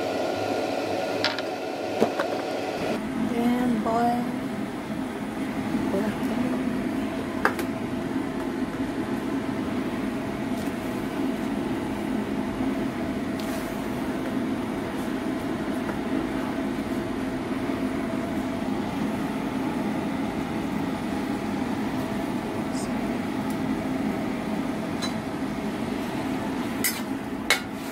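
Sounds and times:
stove hum: 0:00.0 - 0:27.9
water boiling in a pan: 0:06.8 - 0:27.9.

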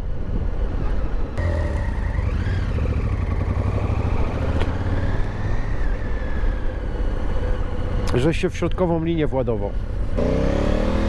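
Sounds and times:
wind rumble: 0:00.0 - 0:08.9
motorcycle engine drone: 0:01.3 - 0:08.1, 0:09.8 - 0:11.0.

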